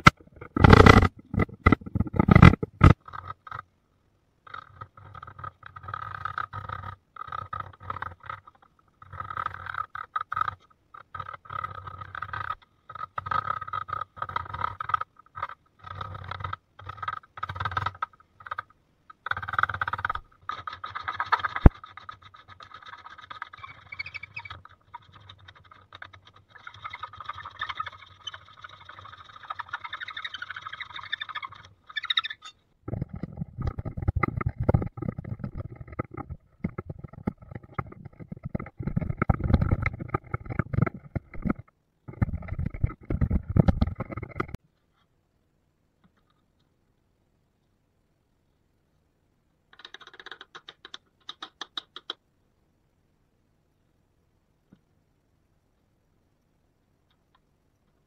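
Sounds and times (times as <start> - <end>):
chisel scraping wood: 0.0 - 3.6, 4.5 - 44.6.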